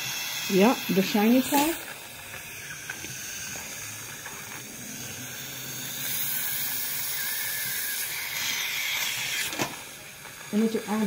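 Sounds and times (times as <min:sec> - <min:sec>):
dental suction tube hissing: 0:00.0 - 0:11.0.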